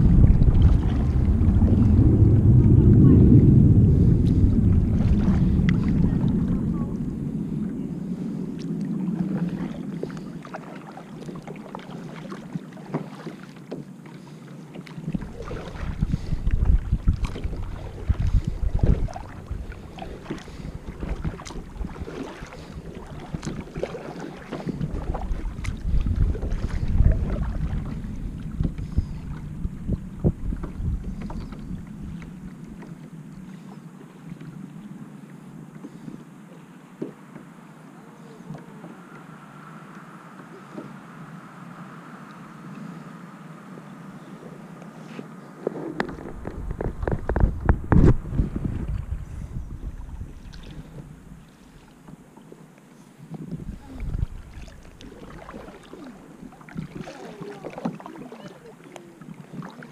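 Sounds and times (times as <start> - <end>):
wind rumble on microphone: 0.0 - 11.8, 13.8 - 52.6, 53.2 - 58.4
paddle splashing water: 0.0 - 59.9.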